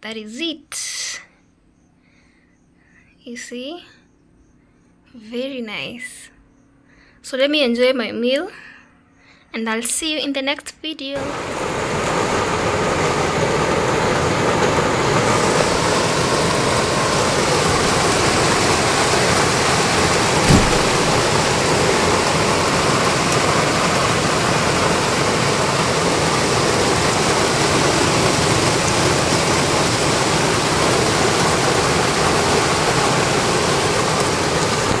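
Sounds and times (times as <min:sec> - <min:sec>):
rain falling on trees: 0:11.2 - 0:35.0
thump: 0:20.4 - 0:21.5.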